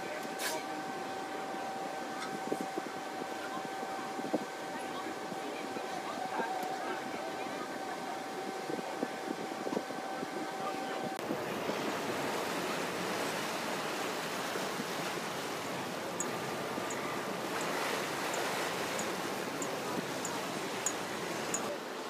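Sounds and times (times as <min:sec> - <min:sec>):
propeller wash churning water: 0:00.0 - 0:22.0
wind on microphone: 0:02.1 - 0:05.4.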